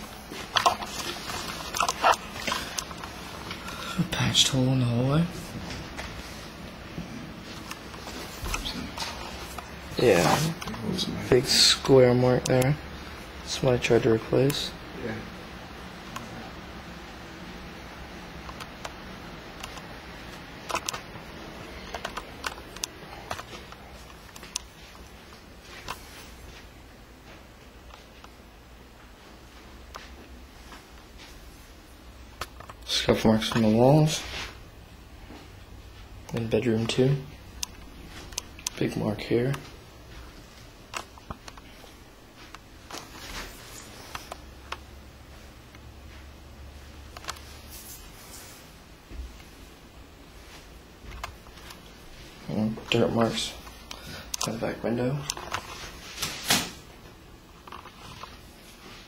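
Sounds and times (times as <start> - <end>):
steady low hum: 0.0 - 59.0
soft rustles: 39.5 - 44.6, 45.3 - 54.3, 55.2 - 56.5.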